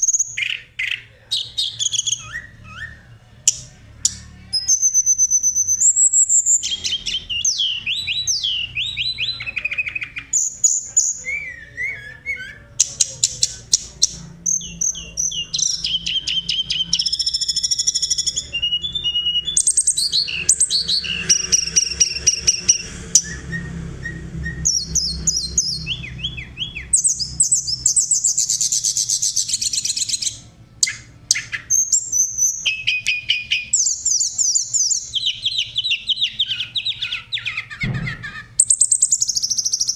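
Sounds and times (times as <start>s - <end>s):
songbird singing: 0.0s - 39.9s.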